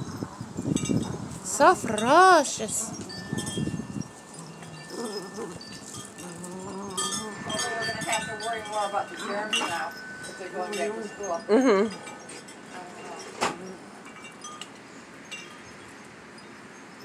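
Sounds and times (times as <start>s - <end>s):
wind chimes ringing: 0.0s - 17.0s
puppies whining: 2.8s - 12.6s.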